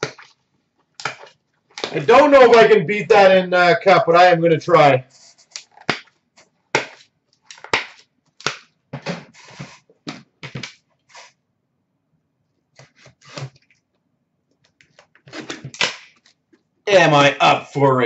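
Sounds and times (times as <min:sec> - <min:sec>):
knocks taps and scrapes of handling: 0:12.7 - 0:16.7.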